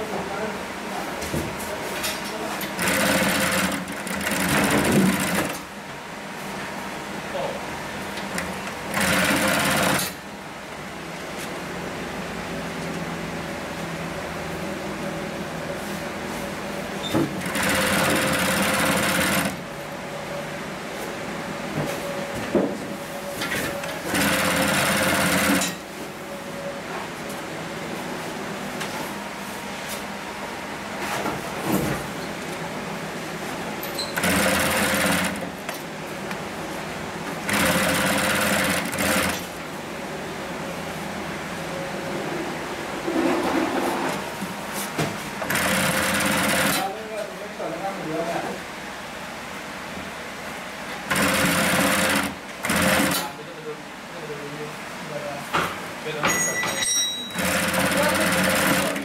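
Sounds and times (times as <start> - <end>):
sewing machine running: 2.6 - 5.6, 8.9 - 10.2, 17.4 - 19.6, 24.0 - 25.8, 34.2 - 35.6, 37.4 - 39.5, 45.4 - 46.9, 51.1 - 53.3, 57.4 - 59.0.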